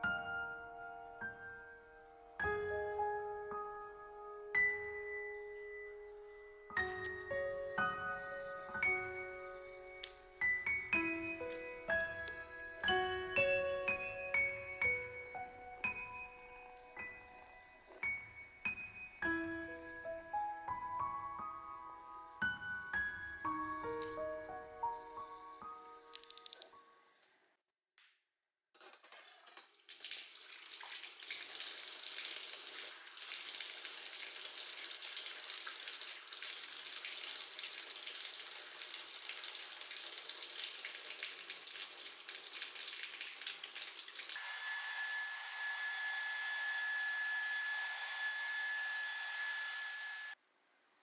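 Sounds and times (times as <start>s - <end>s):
shower water spraying: 29.8s - 50.4s
steady high whistle: 44.4s - 50.4s.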